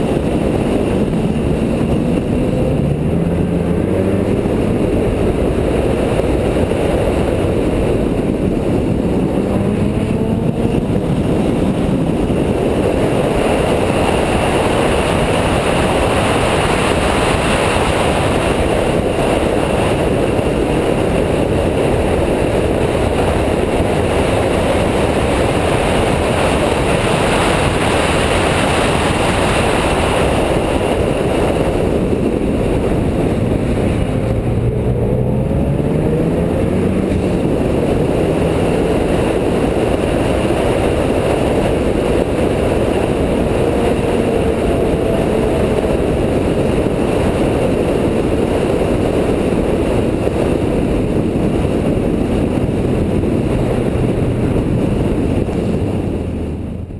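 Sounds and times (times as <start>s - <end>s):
car engine pulling hard: 0.0s - 56.9s
wind and road noise: 0.0s - 56.9s.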